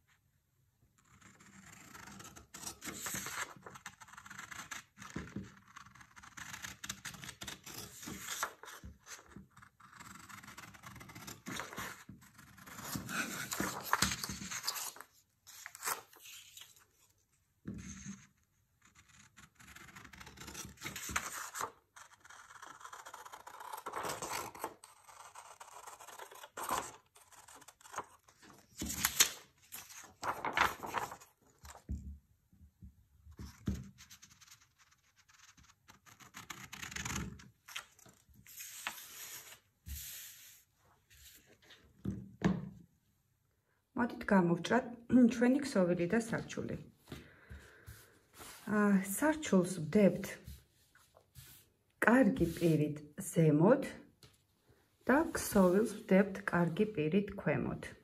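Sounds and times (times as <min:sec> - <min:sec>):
scissors cutting paper: 0:01.2 - 0:16.5, 0:19.0 - 0:31.8.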